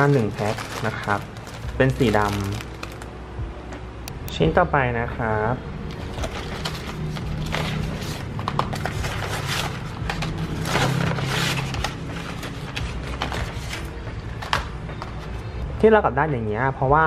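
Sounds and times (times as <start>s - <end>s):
paper envelope crinkling: 0.0s - 3.1s, 5.9s - 13.9s.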